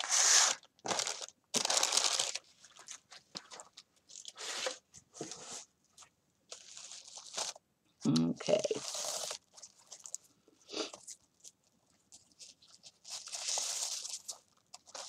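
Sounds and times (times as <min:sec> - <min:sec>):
wrapping paper crinkling: 0:00.0 - 0:04.8, 0:06.5 - 0:07.6, 0:08.5 - 0:10.3, 0:10.9 - 0:15.0.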